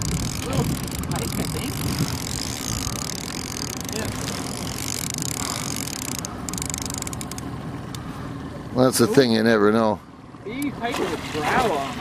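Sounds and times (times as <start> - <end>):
fishing reel clicking: 0.0 - 7.5
small boat motor running: 0.0 - 12.0
water noise: 0.0 - 12.0
wind: 0.0 - 12.0.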